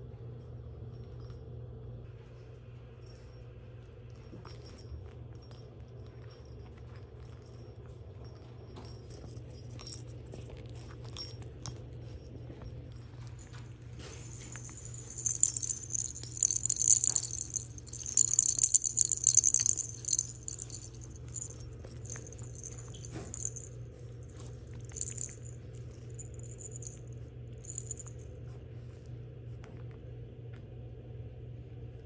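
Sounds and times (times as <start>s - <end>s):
toy ball bell jingling: 4.2s - 28.2s.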